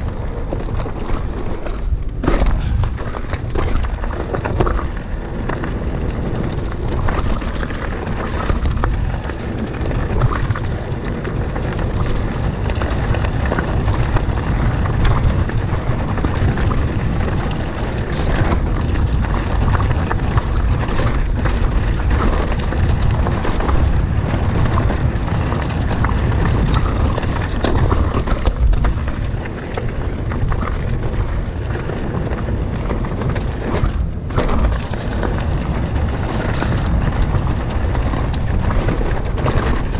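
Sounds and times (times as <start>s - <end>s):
bike rattling and knocking: 0.0s - 39.9s
tyres running on dirt: 0.0s - 39.9s
wind buffeting microphone: 0.0s - 39.9s.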